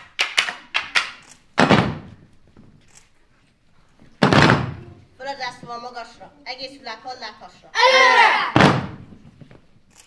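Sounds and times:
thud on wooden stage: 1.6s - 2.2s, 4.2s - 4.8s, 8.5s - 9.2s.

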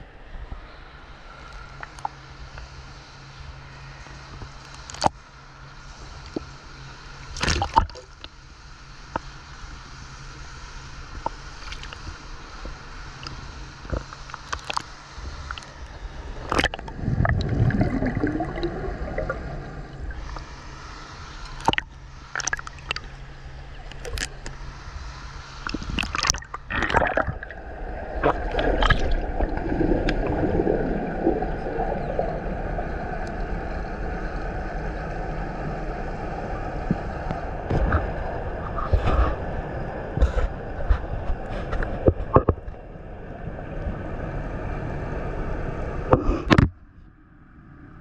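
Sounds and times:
water sloshing and splashing: 7.3s - 8.3s, 14.2s - 20.6s, 21.4s - 24.6s, 25.6s - 33.5s
muffled underwater gurgling rush: 14.7s - 24.8s, 25.6s - 46.7s.

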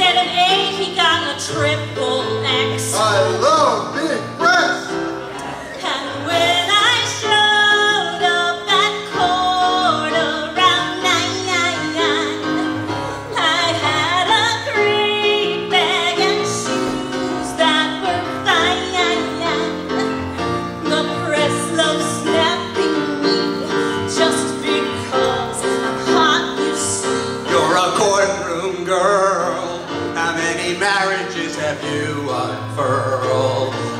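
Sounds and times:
musical accompaniment: 0.0s - 33.9s
woman singing into microphone: 5.6s - 27.8s.

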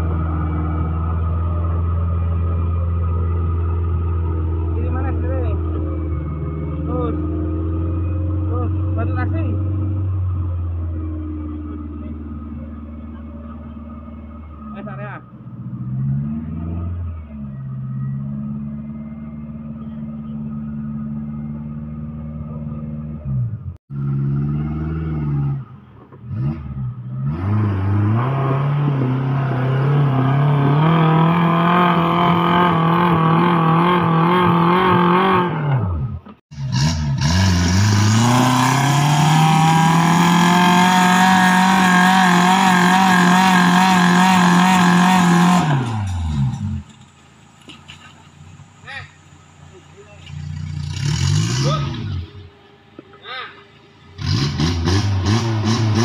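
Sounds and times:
engine revving under load: 14.5s - 47.0s, 50.1s - 52.5s, 54.1s - 56.0s.

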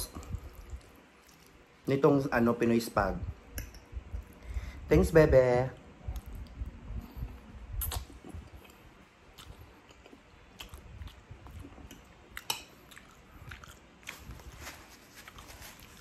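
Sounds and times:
person chewing: 0.1s - 1.8s, 6.1s - 16.0s
short sharp mouth clicks: 7.7s - 8.2s.

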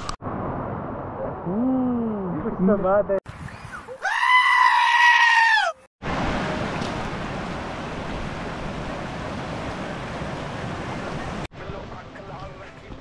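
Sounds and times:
stream rushing over rocks: 6.0s - 11.5s.

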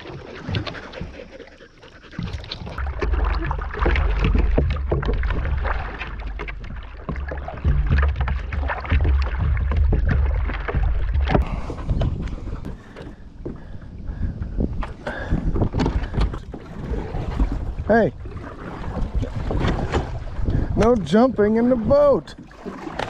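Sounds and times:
water splashing against a kayak: 0.0s - 23.0s
wind rumble on microphone: 2.2s - 22.1s
knocks on a plastic kayak: 7.1s - 11.5s.

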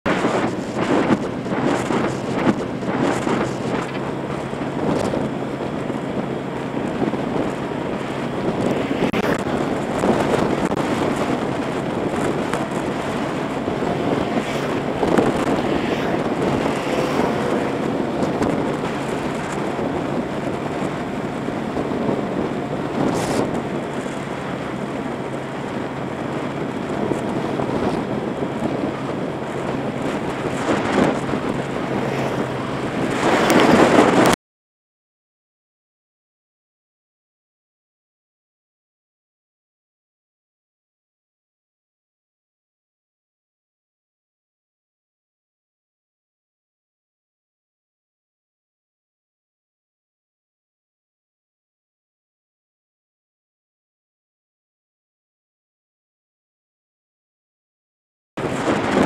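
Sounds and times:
motorbike engine hum: 0.1s - 34.3s
wind on microphone: 0.1s - 34.4s, 58.4s - 59.0s.

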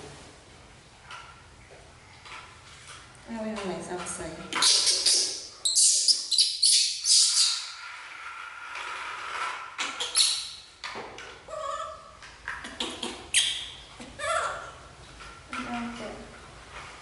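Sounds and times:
baby monkey squealing: 4.6s - 7.7s.

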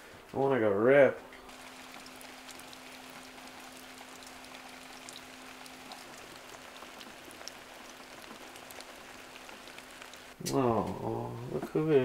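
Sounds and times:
faint steady hum: 0.0s - 12.0s
light rain hissing: 1.4s - 12.0s
raindrops ticking on surfaces: 1.5s - 11.0s.

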